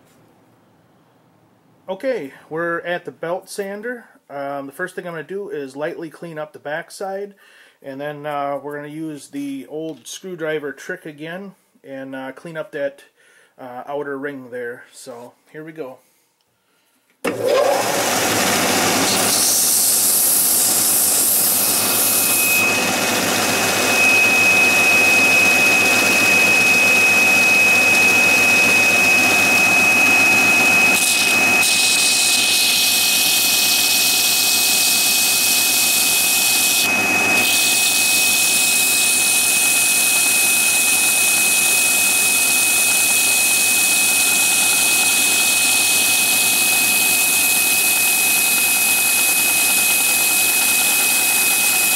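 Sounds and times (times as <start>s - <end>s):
belt sander sanding wood: 17.3s - 51.9s
steady high whine: 22.3s - 31.6s.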